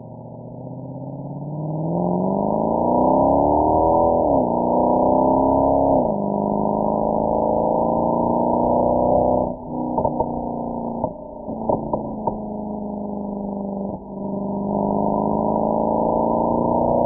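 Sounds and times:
car exhaust droning: 0:00.1 - 0:17.0
exhaust cracks: 0:09.5 - 0:14.0.

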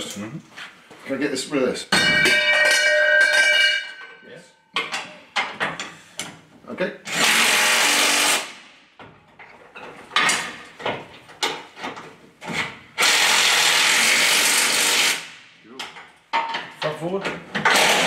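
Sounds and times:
metal and tools clinking: 0:01.9 - 0:06.4.

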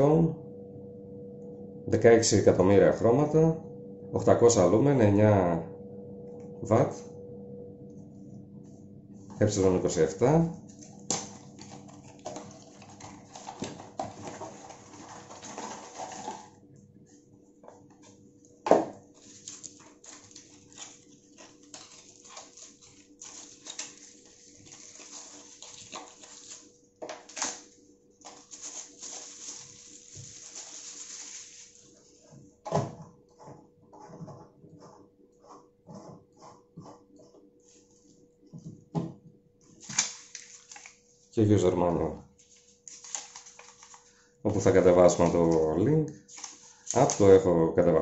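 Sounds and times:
paper rustling: 0:11.2 - 0:16.5, 0:19.1 - 0:32.1, 0:39.8 - 0:41.0, 0:42.4 - 0:44.2, 0:46.2 - 0:47.4
cardboard scraping: 0:11.6 - 0:16.5.

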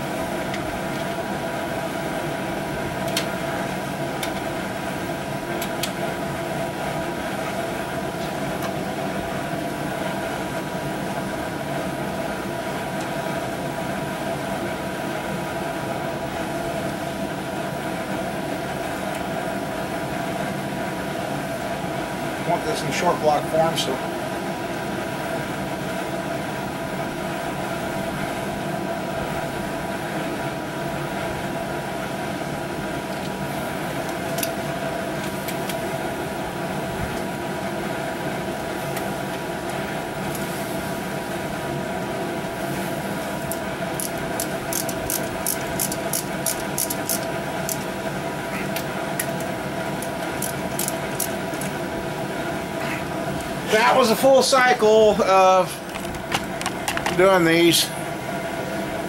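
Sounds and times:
machine hum: 0:00.0 - 0:59.0
hand ratchet clicking: 0:43.5 - 0:47.8, 0:49.2 - 0:51.7.

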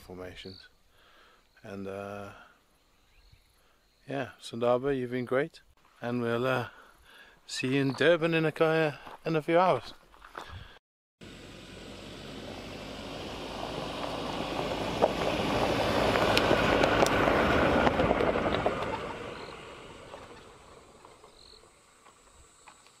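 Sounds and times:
vehicle driving over dirt: 0:11.2 - 0:23.0.

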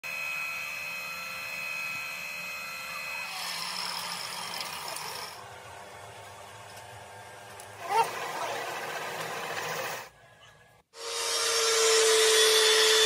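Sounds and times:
rough noisy machine sound: 0:00.8 - 0:06.9, 0:07.5 - 0:10.2.

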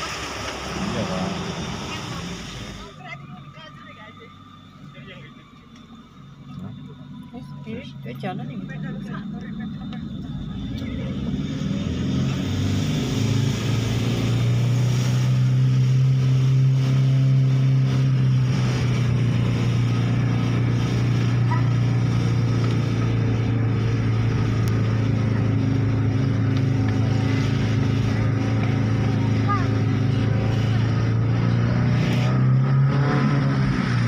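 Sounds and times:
car engine hum inside cabin: 0:00.0 - 0:34.0
faint road noise: 0:00.0 - 0:34.0.

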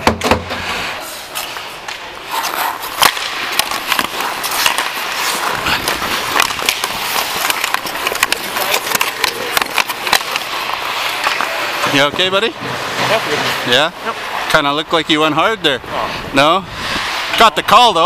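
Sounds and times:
skate blades scraping ice: 0:00.5 - 0:18.0
sticks and puck clicking on ice: 0:01.3 - 0:12.0.

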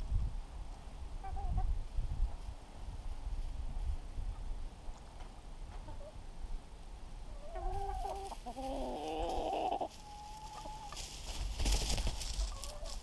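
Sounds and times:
hen clucking and squawking: 0:01.2 - 0:01.7, 0:05.7 - 0:06.2, 0:07.2 - 0:13.0
loud rustle: 0:09.9 - 0:13.0.

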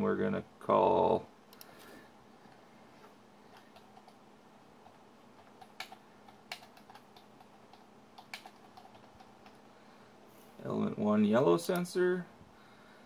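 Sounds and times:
computer keyboard typing: 0:03.5 - 0:04.2, 0:04.8 - 0:09.6.

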